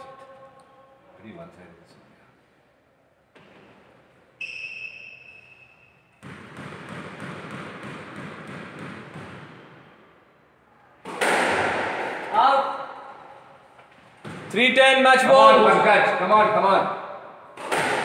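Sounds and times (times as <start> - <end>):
shoe squeaking on court: 4.3 - 6.3
ball smacking: 11.0 - 12.3, 17.6 - 18.0.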